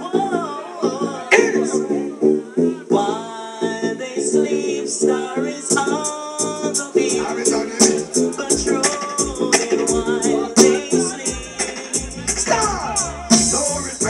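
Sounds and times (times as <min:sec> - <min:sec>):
song with sung vocal: 0:00.0 - 0:14.0
deep bass: 0:07.1 - 0:14.0.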